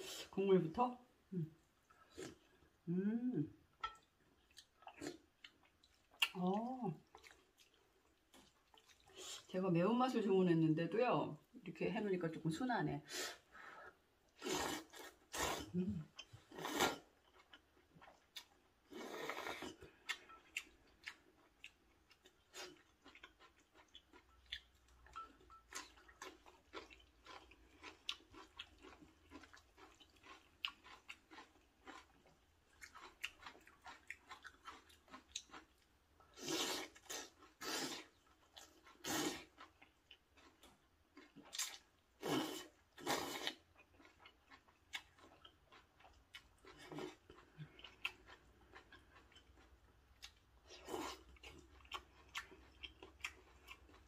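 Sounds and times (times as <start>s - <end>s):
wet chewing: 3.7s - 9.5s, 14.3s - 54.0s
slurping noodles: 14.4s - 15.8s, 16.5s - 17.1s.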